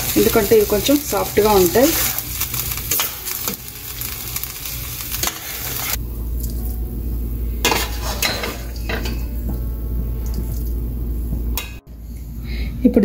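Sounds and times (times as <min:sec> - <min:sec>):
sauce sizzling and bubbling in pan: 0:00.0 - 0:06.8
low steady hum: 0:00.0 - 0:13.0
dishes clinking: 0:07.6 - 0:09.6.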